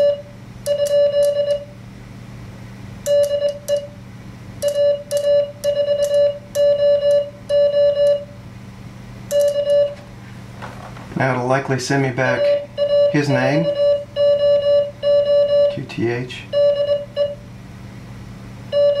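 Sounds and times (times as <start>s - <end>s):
morse code beeps: 0.0s - 1.8s, 3.1s - 4.0s, 4.6s - 8.4s, 9.3s - 10.0s, 12.3s - 15.9s, 16.5s - 17.4s, 18.7s - 19.0s.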